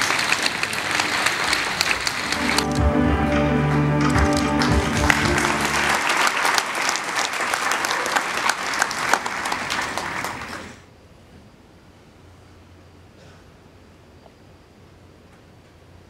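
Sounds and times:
audience applauding: 0.0 - 10.8
music: 2.4 - 6.3.

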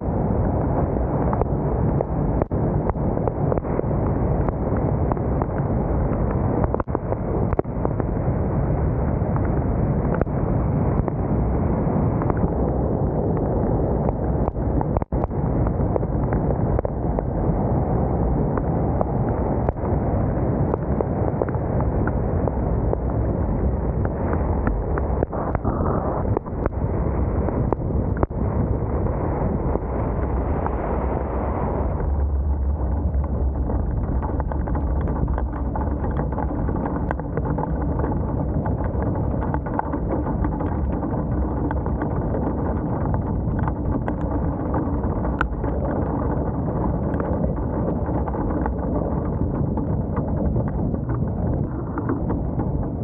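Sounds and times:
wind buffeting microphone: 0.0 - 53.0
tyre noise on wet road: 18.2 - 53.0.

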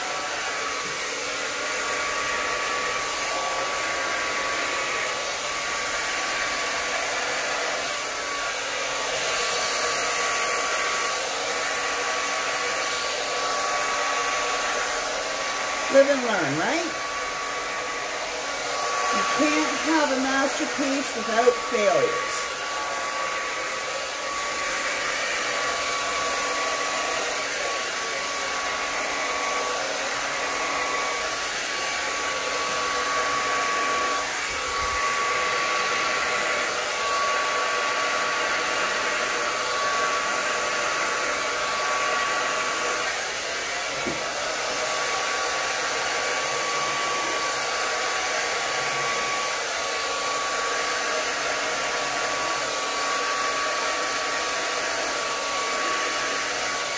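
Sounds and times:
hair dryer running: 0.0 - 56.9.

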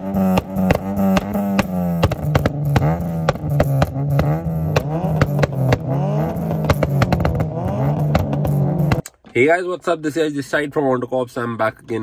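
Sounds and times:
car engine revving: 0.0 - 9.0
exhaust cracks: 0.0 - 10.0.

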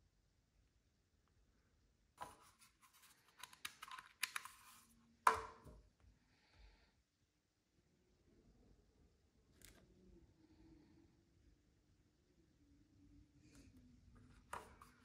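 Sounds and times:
plastic clicks and scrapes: 2.2 - 4.9.

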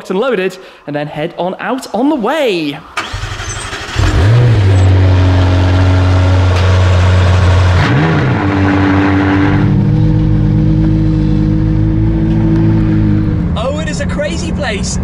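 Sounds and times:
engine starting with rev: 2.9 - 10.2
smooth engine note: 3.8 - 14.8.

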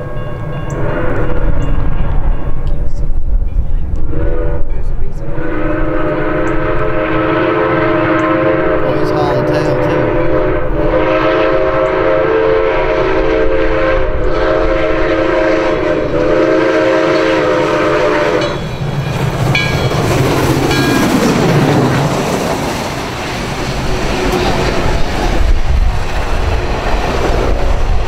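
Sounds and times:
steam train rumbling past: 0.0 - 28.0
steam whistle blasts: 5.3 - 18.6
wheels clattering on rail: 18.4 - 28.0.

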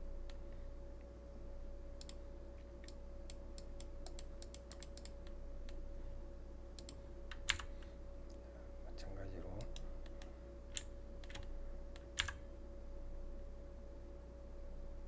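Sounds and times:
steady electrical hum: 0.0 - 15.0
computer mouse clicking: 2.0 - 2.2, 2.8 - 5.8, 6.8 - 8.4, 9.5 - 12.4.

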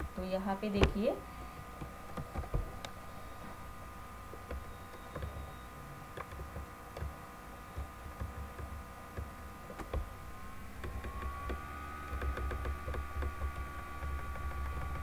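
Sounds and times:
steady electrical whine: 0.0 - 15.0
computer mouse clicks: 10.8 - 15.0.

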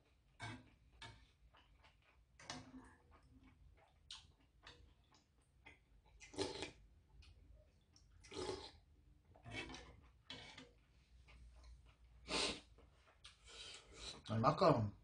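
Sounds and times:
slurping soup: 6.2 - 6.8, 8.2 - 14.3.

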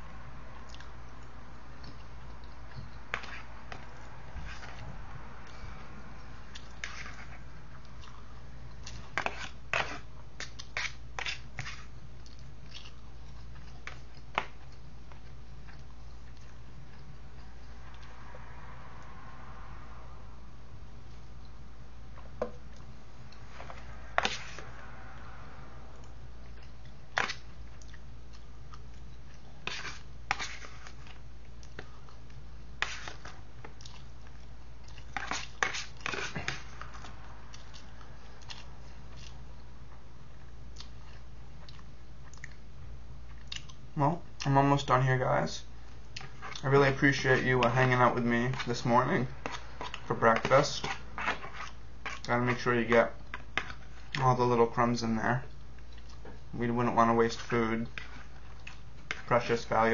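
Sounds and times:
steady low hum: 0.0 - 59.9
person chewing: 0.6 - 4.8, 6.2 - 18.2, 26.0 - 43.9, 45.8 - 46.7, 49.4 - 50.1, 50.8 - 52.3, 55.5 - 56.5, 57.9 - 59.3
fork scraping food tray: 6.8 - 7.4, 9.2 - 10.1, 10.8 - 11.9, 23.6 - 24.6, 29.6 - 31.0, 35.2 - 36.8, 46.2 - 52.6.

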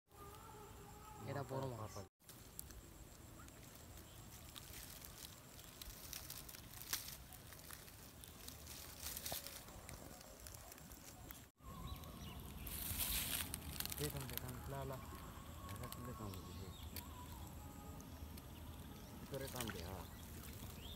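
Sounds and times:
light ticks and rustles: 2.2 - 11.4
hissing rustle: 2.2 - 11.5, 12.1 - 17.4.

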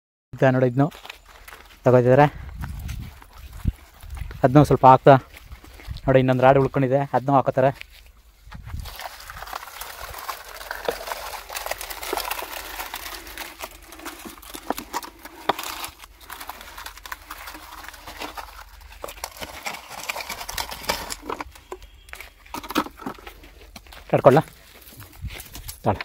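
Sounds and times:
wet concrete scraping: 8.7 - 25.8
gravel and bucket rim knocking: 8.7 - 26.0.

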